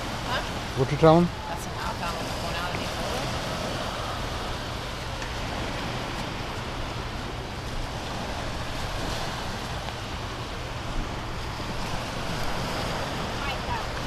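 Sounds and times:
small surf washing: 0.0s - 14.0s.

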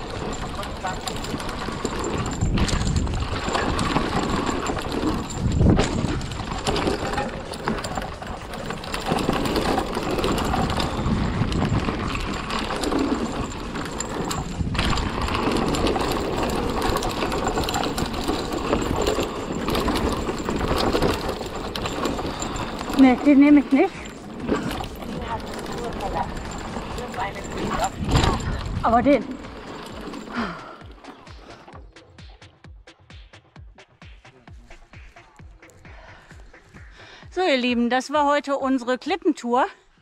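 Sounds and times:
tyres rolling over dirt and leaves: 0.0s - 31.8s
bike knocking and rattling: 0.0s - 33.2s, 34.2s - 39.7s
wind rushing over microphone: 10.4s - 12.6s, 26.6s - 29.3s.

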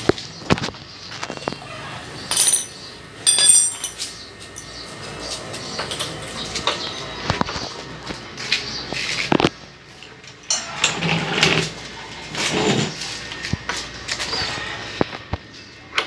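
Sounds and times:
metal tools clicking and knocking: 2.3s - 4.7s.

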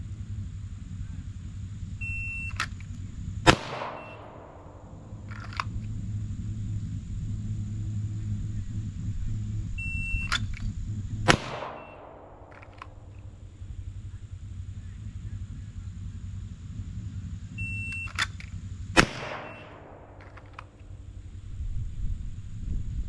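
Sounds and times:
steady low rumble: 0.0s - 23.0s
shot timer beep: 2.0s - 2.6s, 3.9s - 4.2s, 11.7s - 12.0s, 17.6s - 18.2s, 19.4s - 19.8s
pistol shot with echo: 3.4s - 5.8s, 11.2s - 13.4s, 18.0s - 20.9s.

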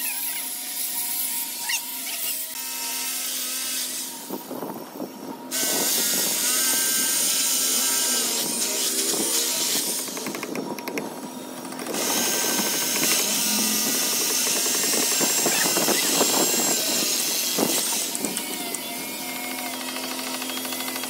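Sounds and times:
electric drill boring into brick: 5.5s - 21.0s.

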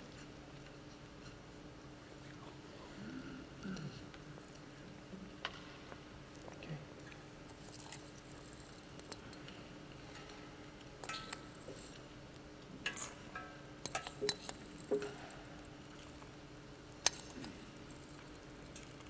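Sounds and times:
low steady hum: 0.0s - 19.0s
metallic clinks and taps: 7.5s - 12.0s, 12.8s - 15.4s.

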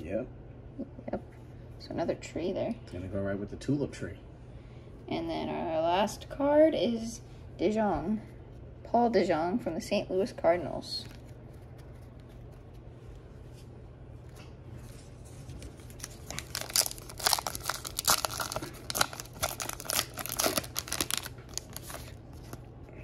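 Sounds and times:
plastic wrapper tearing and crinkling: 15.5s - 22.6s.

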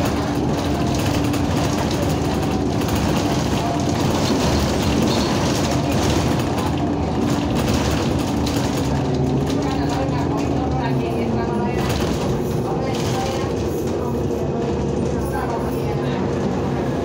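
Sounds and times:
bus engine drone: 0.0s - 17.0s.

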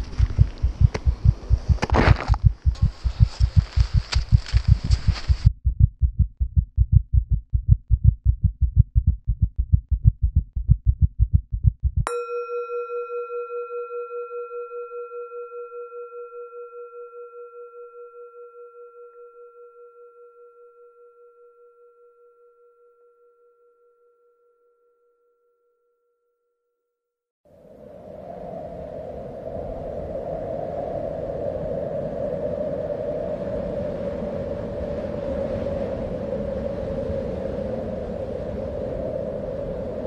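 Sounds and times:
rapid low thumping pulses: 0.0s - 12.1s
struck bell-like metal tone: 12.0s - 26.0s.

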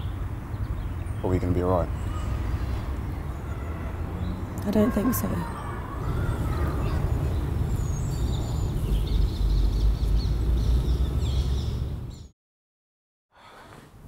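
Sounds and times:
small birds chirping: 0.0s - 12.3s.

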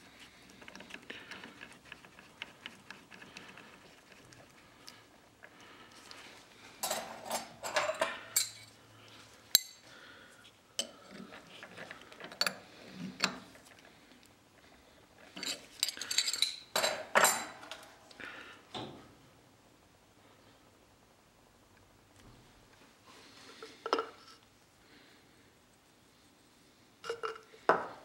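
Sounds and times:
metal tooling clinking: 6.8s - 8.7s, 9.5s - 9.8s.

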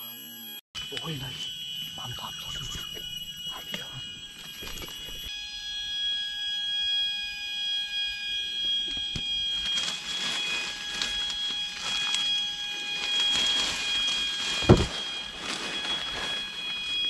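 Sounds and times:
dry leaves crunching: 9.1s - 17.0s
foliage rustling: 9.5s - 17.0s.

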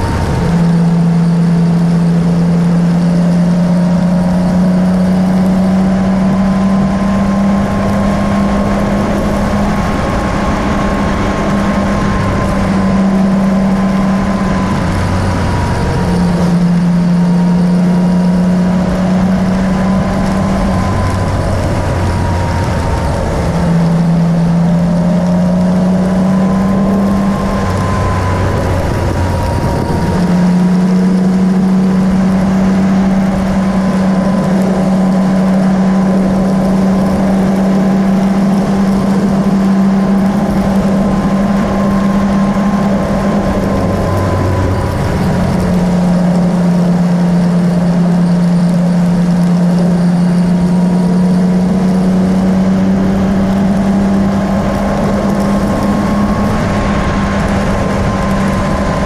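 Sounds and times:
vehicle engine running: 0.0s - 59.0s
wind and road rush: 0.0s - 59.0s.

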